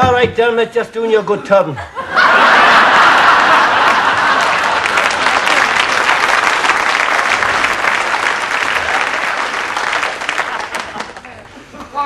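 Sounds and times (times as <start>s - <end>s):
audience applauding: 2.7s - 11.5s.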